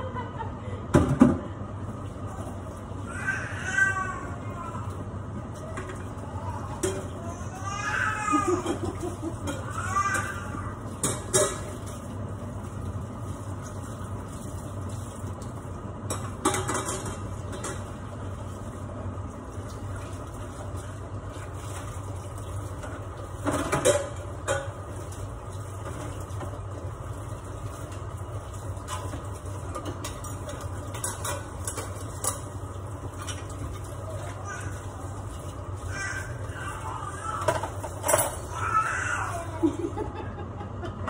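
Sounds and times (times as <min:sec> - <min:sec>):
range hood fan humming: 0:00.0 - 0:41.0
dishes and utensils clinking: 0:06.7 - 0:07.2, 0:08.7 - 0:12.0, 0:16.1 - 0:17.9, 0:22.8 - 0:25.2, 0:28.9 - 0:34.4, 0:37.4 - 0:38.6.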